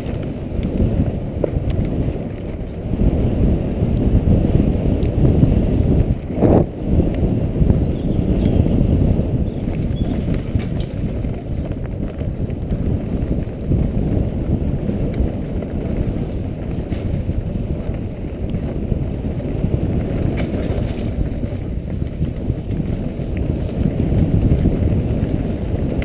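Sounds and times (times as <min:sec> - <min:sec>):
bike tyres on dirt: 0:00.0 - 0:26.0
wind buffeting microphone: 0:00.0 - 0:26.0
bike clicks and knocks: 0:08.3 - 0:26.0.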